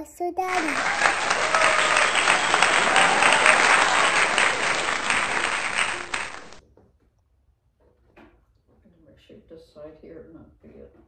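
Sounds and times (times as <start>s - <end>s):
crowd applause: 0.5s - 6.6s.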